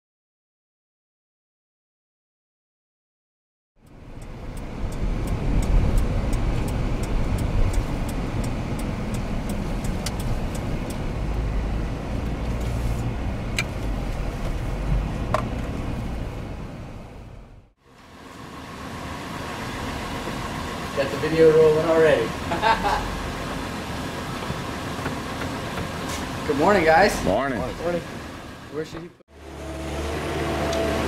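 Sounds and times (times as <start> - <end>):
quick light ticks: 3.8 - 11.1
sharp clicks: 3.8 - 11.1
engine running: 3.8 - 31.0.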